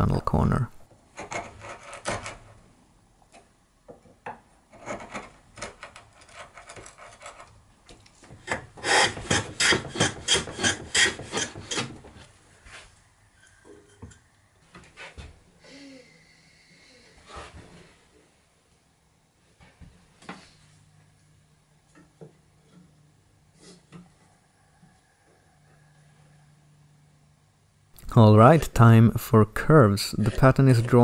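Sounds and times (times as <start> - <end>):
chisel paring wood: 8.2 - 12.2
hand plane shaving wood: 8.4 - 12.2.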